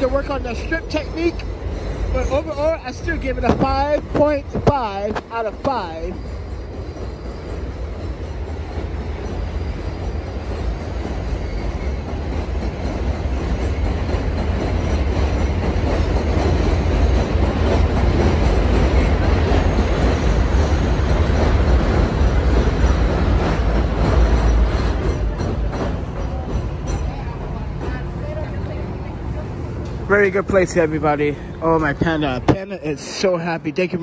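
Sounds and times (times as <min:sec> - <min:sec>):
elevated train rumbling: 0:00.0 - 0:34.0.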